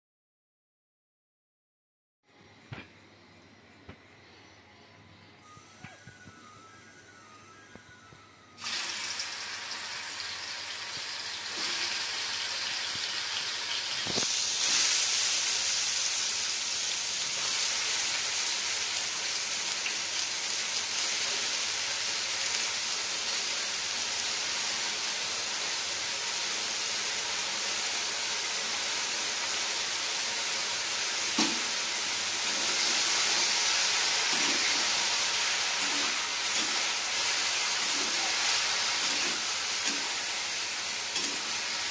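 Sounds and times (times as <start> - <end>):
mushrooms sizzling in hot oil: 8.6 - 41.9.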